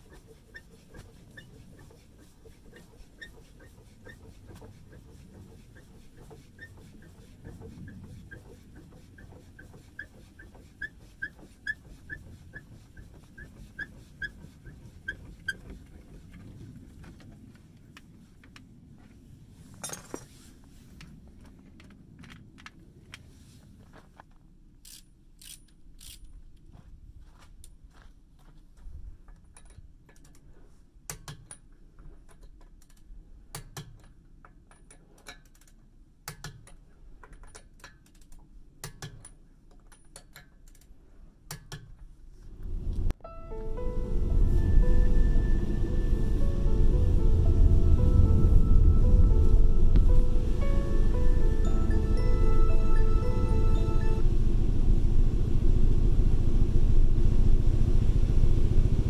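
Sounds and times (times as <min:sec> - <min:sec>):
scissor jack squeaking: 0:00.0 - 0:15.7.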